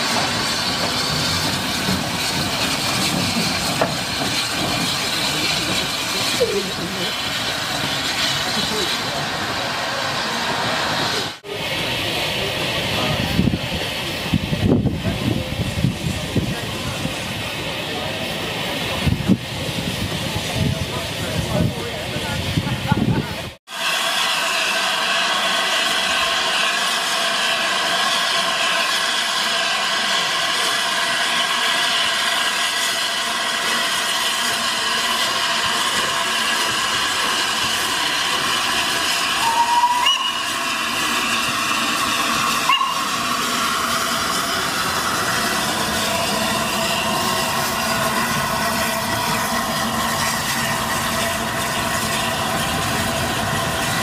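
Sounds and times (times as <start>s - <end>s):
steam locomotive hissing: 0.0s - 54.0s
train whistle blasts: 39.4s - 40.7s, 42.6s - 43.2s.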